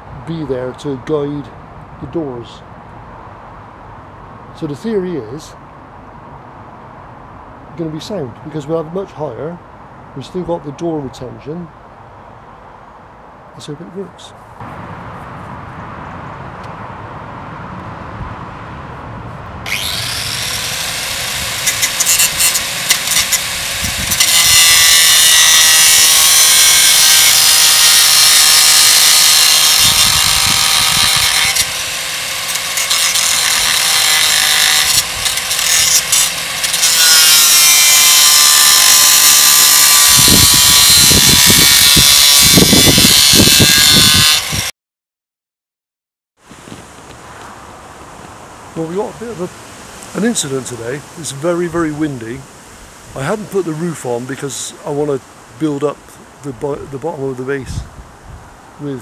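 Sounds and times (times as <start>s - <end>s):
angle grinder cutting steel: 19.6s - 44.7s.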